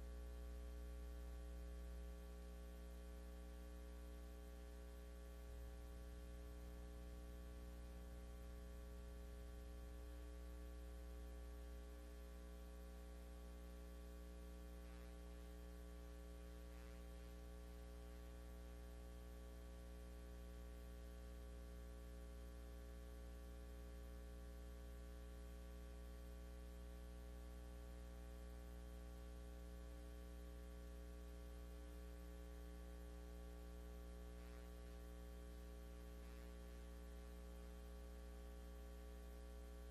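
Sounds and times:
electrical mains hum: 0.0s - 39.9s.

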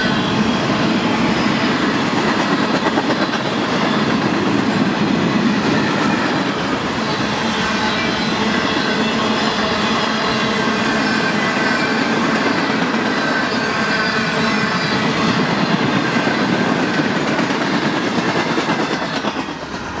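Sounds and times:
train wheels clicking over rail joints: 1.6s - 7.0s, 15.4s - 20.0s.

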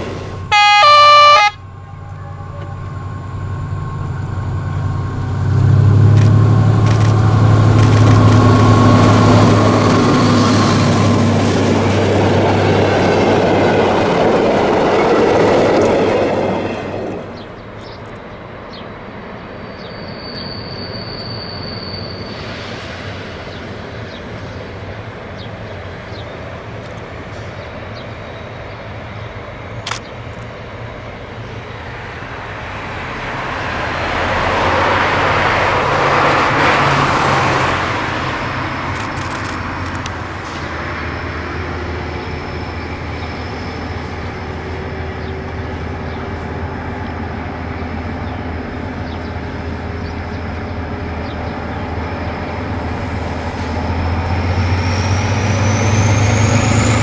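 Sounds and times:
diesel locomotive engine: 0.0s - 57.0s
car passing: 3.0s - 15.0s, 31.0s - 43.4s.

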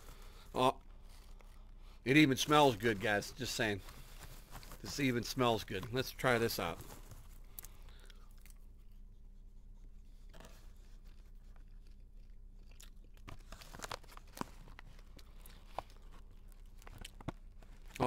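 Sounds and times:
popcorn crunching: 10.3s - 18.0s.

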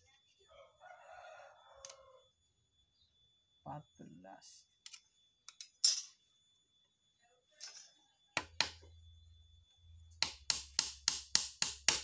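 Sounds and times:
hammer tapping nail into wood: 10.2s - 12.0s.

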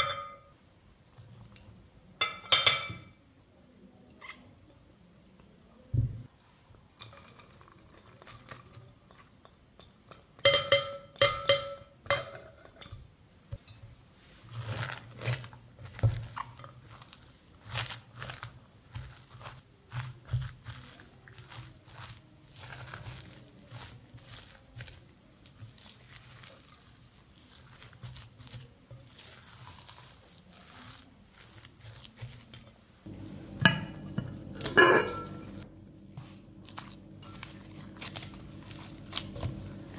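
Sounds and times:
spatula stirring in glass bowl: 7.0s - 39.9s
glass bowl rattling: 33.5s - 35.6s.

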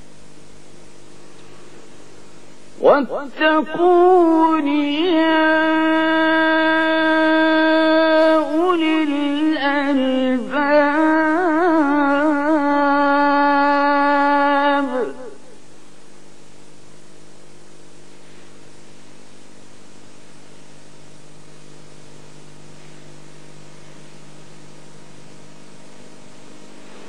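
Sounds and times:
recording hiss and electrical hum: 0.0s - 27.0s
person reciting in long held note: 2.8s - 15.6s.

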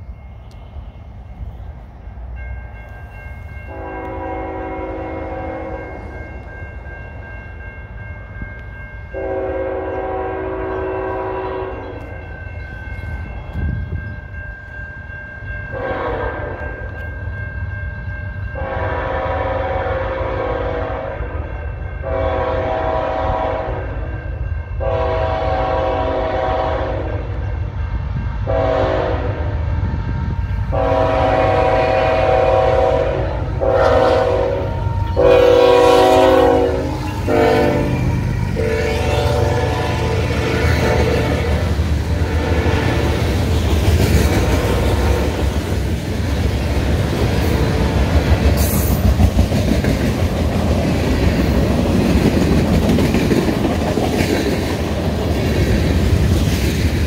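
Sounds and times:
crossing bell ringing: 0.0s - 29.1s, 29.8s - 50.1s
train rumble: 0.0s - 57.0s
locomotive air horn: 3.7s - 6.0s, 9.1s - 12.1s, 15.7s - 16.8s, 18.6s - 24.1s, 24.8s - 27.4s, 28.4s - 29.6s, 30.2s - 43.4s.

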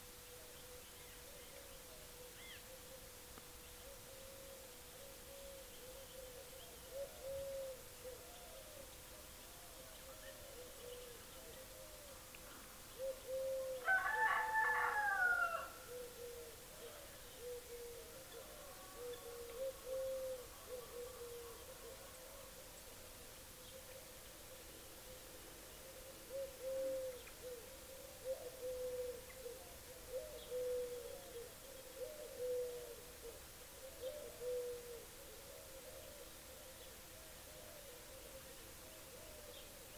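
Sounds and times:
low bird calls: 0.3s - 3.1s, 3.7s - 22.8s, 23.6s - 39.9s
rooster crowing: 13.8s - 16.0s, 18.6s - 21.6s.

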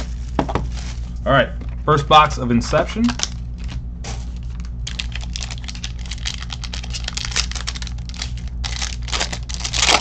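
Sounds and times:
foil wrapper crinkling and tearing: 3.0s - 10.0s.

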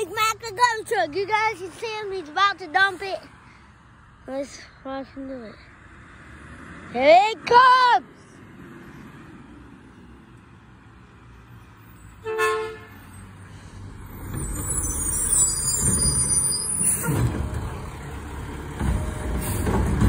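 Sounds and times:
garbage truck diesel engine: 11.8s - 20.0s
horn toot: 12.2s - 13.1s
high-pitched squeal: 14.1s - 17.5s.

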